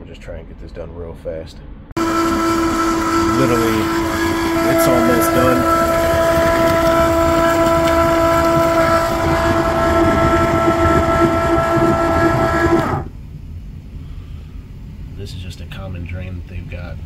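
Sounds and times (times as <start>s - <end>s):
transfer pump humming: 2.0s - 13.2s.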